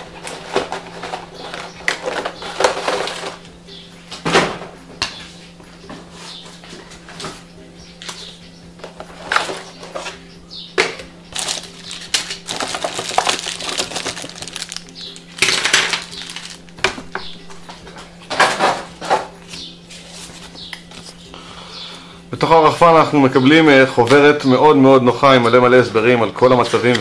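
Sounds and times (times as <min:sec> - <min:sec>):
plastic parts clattering on wood: 0:00.2 - 0:03.4, 0:11.4 - 0:16.6
plastic bags crinkling: 0:11.3 - 0:16.8.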